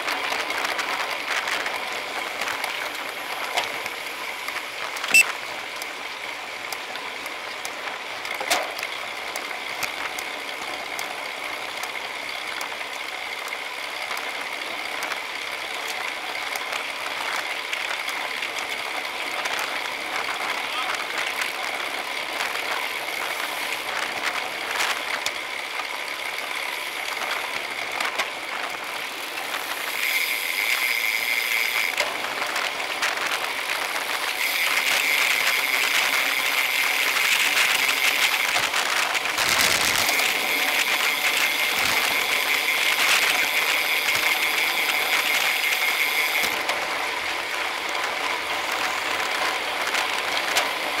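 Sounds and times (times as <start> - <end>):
bicycle freehub ratchets buzzing: 0.0 - 51.0
wind: 0.0 - 51.0.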